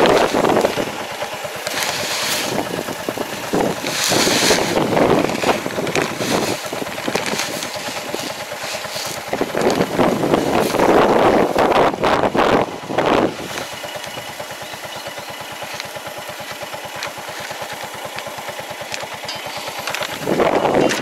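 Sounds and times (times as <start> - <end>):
wind buffeting microphone: 0.0 - 14.4, 20.1 - 21.0
fertilizer pouring from bag: 0.0 - 21.0
tractor engine idling: 0.0 - 21.0.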